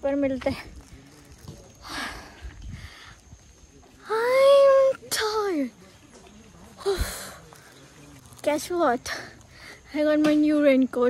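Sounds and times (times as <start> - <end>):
faint breath: 1.8 - 3.4, 9.1 - 9.9
wind rumble on microphone: 2.2 - 3.4.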